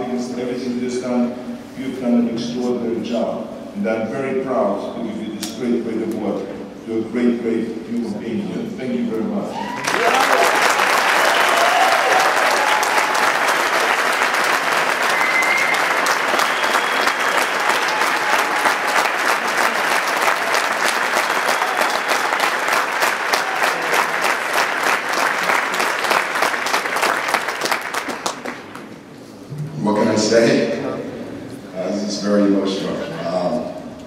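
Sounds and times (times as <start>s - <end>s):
audience applauding: 9.6s - 28.9s.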